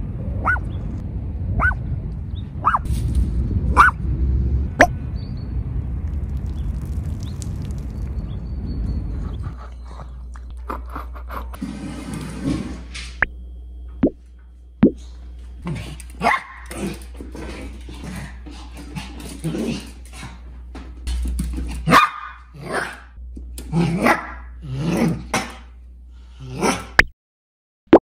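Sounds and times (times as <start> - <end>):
dog barking: 0.4 - 0.7, 1.6 - 1.8, 2.6 - 2.9, 3.8 - 4.0, 16.2 - 16.6, 21.9 - 23.0, 24.0 - 24.4.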